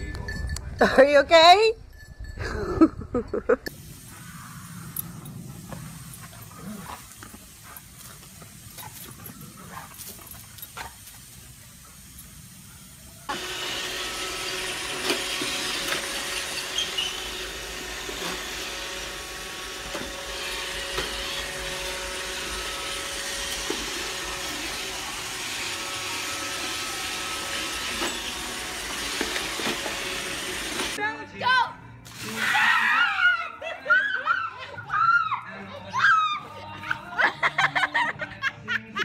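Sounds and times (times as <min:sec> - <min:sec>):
robot vacuum whirring hum: 0:13.3 - 0:31.0.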